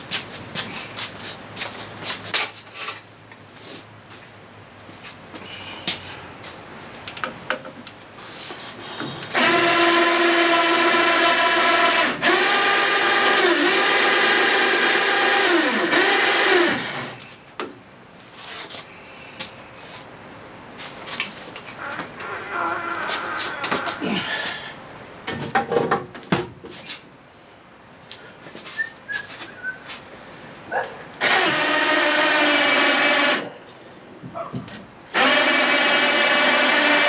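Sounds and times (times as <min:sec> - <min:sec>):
knocks and clatter of shop work: 0:07.1 - 0:07.9, 0:25.2 - 0:27.0, 0:34.2 - 0:34.9.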